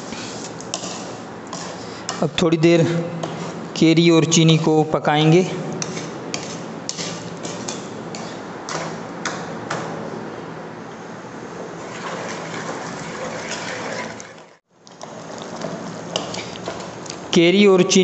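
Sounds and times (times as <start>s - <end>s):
spatula knocking and scraping pot: 0.7s - 2.4s, 3.2s - 3.7s, 5.8s - 9.9s.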